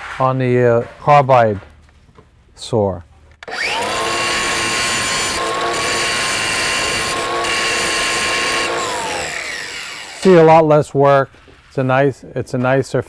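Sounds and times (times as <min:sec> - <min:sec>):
angle grinder grinding metal: 0:03.5 - 0:10.6.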